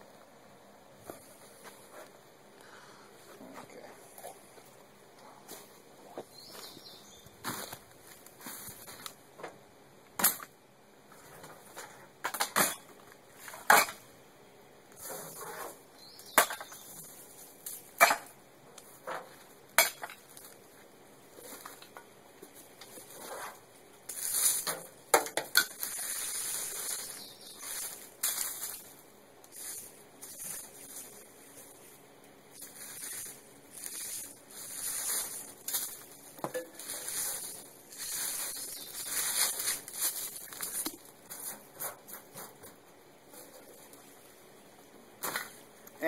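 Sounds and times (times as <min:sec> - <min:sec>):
rustling hiss: 0:00.0 - 0:09.3, 0:20.3 - 0:25.0, 0:25.6 - 0:42.6.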